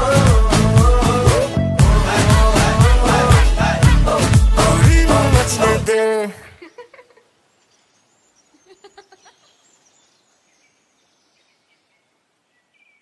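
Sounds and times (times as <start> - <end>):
pop song sung note: 0.0 - 6.5
faint high bird-like chirps: 7.5 - 13.0.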